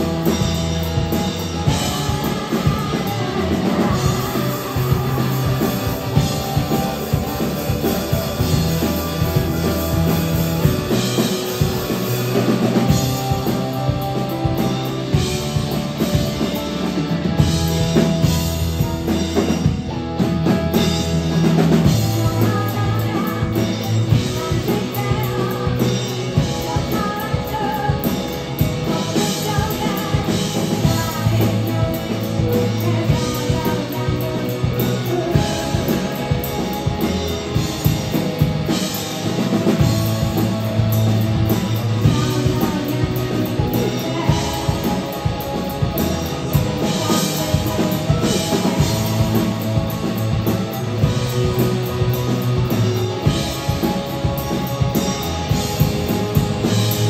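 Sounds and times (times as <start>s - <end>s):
person singing: 0.0s - 17.2s, 21.5s - 38.2s, 41.5s - 52.2s
drum kit beat: 0.0s - 57.0s
electric guitar: 0.0s - 57.0s
keyboards: 0.0s - 57.0s.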